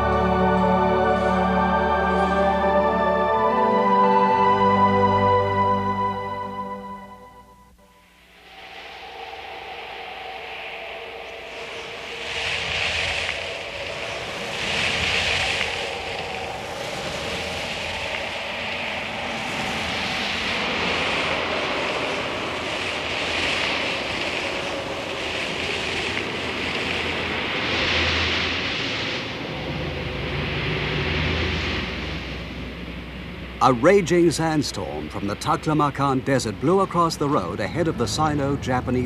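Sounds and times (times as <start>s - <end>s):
low rumble: 0.0s - 39.0s
wind blowing in gusts: 8.0s - 39.0s.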